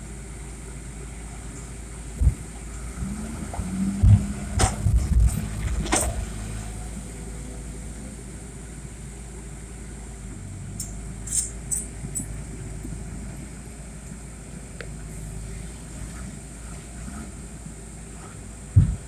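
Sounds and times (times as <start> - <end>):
excavator diesel engine: 0.0 - 19.0
sharp metallic clinks: 10.8 - 12.4.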